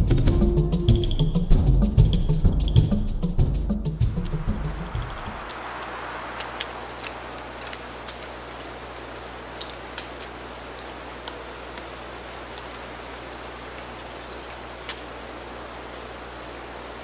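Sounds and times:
steady hiss: 3.8 - 17.0
woodpecker pecking tree bark: 4.0 - 15.2.

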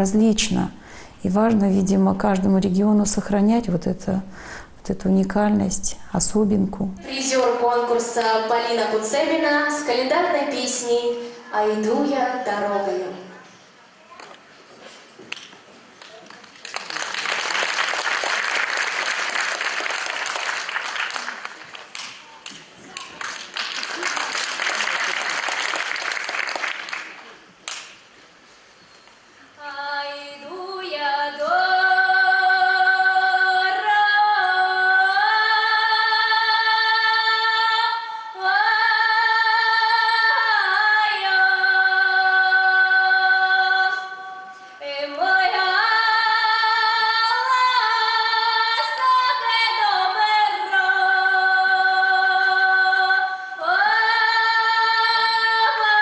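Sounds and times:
woman singing unaccompanied: 4.9 - 13.2, 29.6 - 56.0
applause: 16.0 - 28.0.

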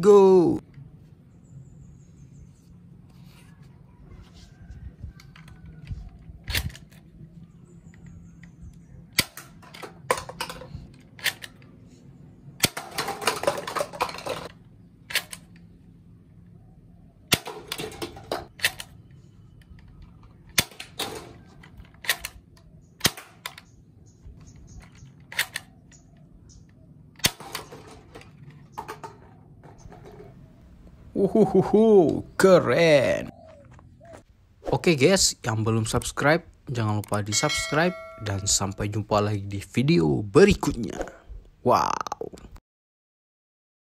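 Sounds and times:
plastic cups clattering on concrete: 12.8 - 14.5
toy pistol snapping shots: 23.0 - 23.7.

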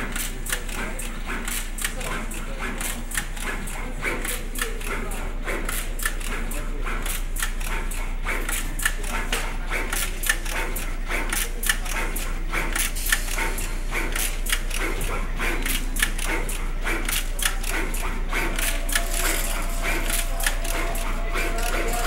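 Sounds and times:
machine clicking rapidly: 0.0 - 22.0
steady low hum: 11.9 - 22.0.

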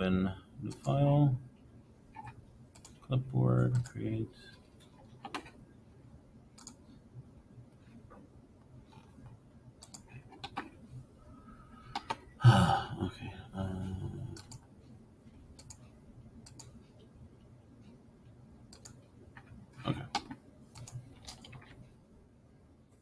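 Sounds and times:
computer mouse clicks: 2.2 - 3.0, 3.6 - 4.0, 6.6 - 6.8, 8.9 - 10.7, 11.9 - 12.2, 14.4 - 14.7, 15.6 - 17.1, 18.7 - 21.8.

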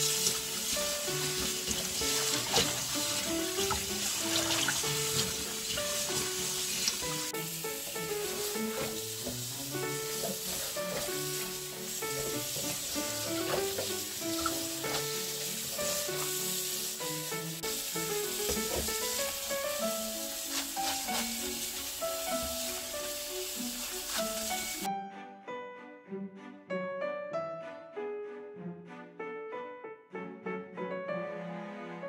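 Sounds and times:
tap water splashing into steel bowl: 0.0 - 7.3, 12.2 - 16.4, 18.4 - 19.1
background music: 0.0 - 32.0.

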